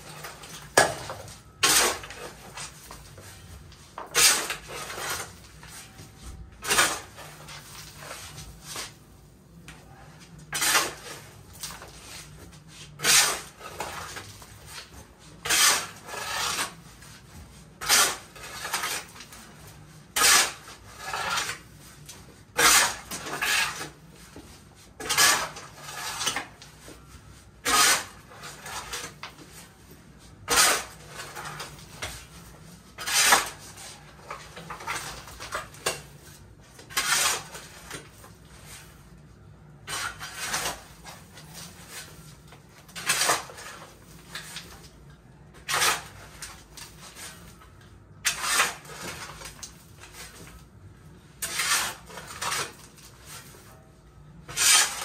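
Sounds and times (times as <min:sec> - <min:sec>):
dumping shovel load: 0:00.0 - 0:02.8, 0:04.0 - 0:05.9, 0:06.6 - 0:08.8, 0:10.5 - 0:12.2, 0:12.9 - 0:14.8, 0:22.5 - 0:24.0, 0:24.9 - 0:26.6, 0:27.6 - 0:29.6, 0:30.4 - 0:32.3, 0:48.2 - 0:50.4, 0:51.4 - 0:53.7, 0:54.4 - 0:55.0
shovel scraping gravelly soil: 0:01.6 - 0:02.8, 0:04.1 - 0:05.4, 0:10.5 - 0:11.4, 0:12.0 - 0:14.2, 0:15.4 - 0:16.8, 0:17.8 - 0:19.2, 0:22.6 - 0:24.0, 0:24.9 - 0:26.6, 0:27.6 - 0:29.2, 0:30.5 - 0:32.0, 0:33.0 - 0:35.7, 0:36.9 - 0:37.9, 0:48.3 - 0:49.5, 0:51.4 - 0:53.6, 0:54.5 - 0:55.0.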